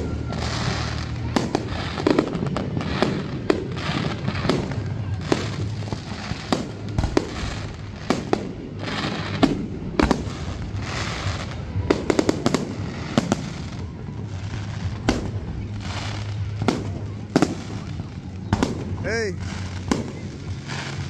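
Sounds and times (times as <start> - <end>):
fireworks bangs: 0.0 - 21.0
fireworks crackling: 0.0 - 21.0.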